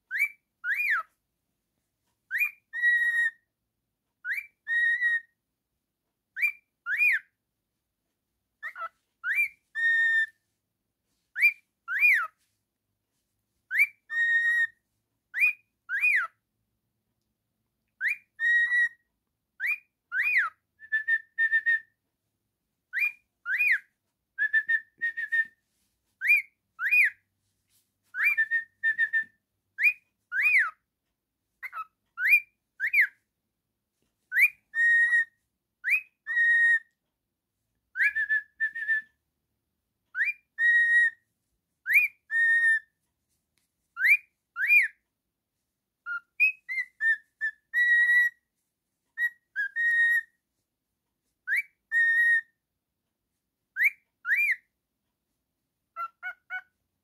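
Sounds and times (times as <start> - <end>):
cockatiel whistling a tune: 0.0 - 1.2, 2.3 - 3.5, 4.2 - 5.4, 6.3 - 7.4, 8.6 - 10.5, 11.3 - 12.4, 13.6 - 16.4, 18.0 - 22.0, 22.9 - 25.6, 26.2 - 27.3, 28.1 - 30.8, 31.6 - 33.2, 34.3 - 37.0, 37.9 - 39.2, 40.1 - 41.2, 41.8 - 43.0, 44.0 - 45.0, 46.0 - 48.5, 49.1 - 50.4, 51.4 - 52.6, 53.7 - 54.8, 55.9 - 56.8.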